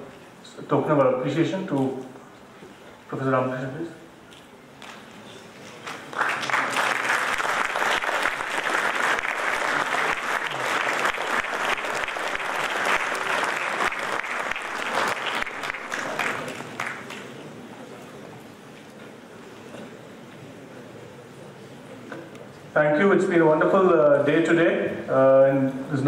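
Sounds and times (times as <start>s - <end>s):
audience applauding: 5.8s - 17.4s.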